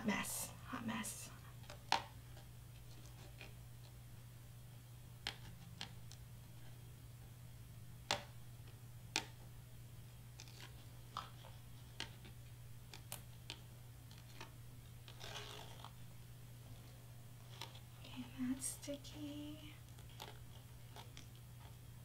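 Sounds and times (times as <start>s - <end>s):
low steady hum: 0.0s - 22.0s
liner peeled off foam tape: 12.0s - 16.0s.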